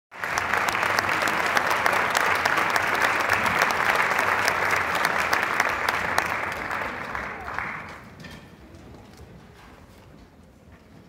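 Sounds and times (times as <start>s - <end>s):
audience applauding: 0.1s - 8.1s.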